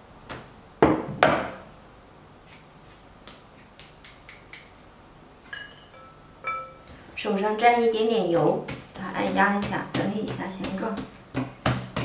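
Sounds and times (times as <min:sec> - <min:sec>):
chopsticks clicking together: 0:03.3 - 0:04.8.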